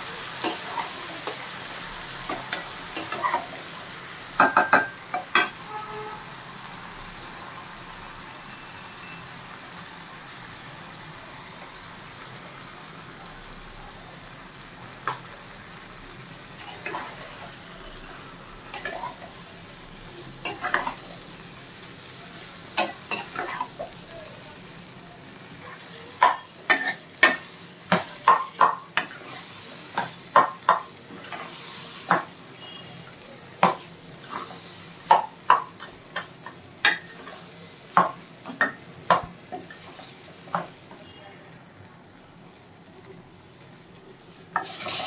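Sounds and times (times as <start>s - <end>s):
pan sizzling: 0.0s - 45.0s
steel ladle scraping a pan: 44.3s - 45.0s.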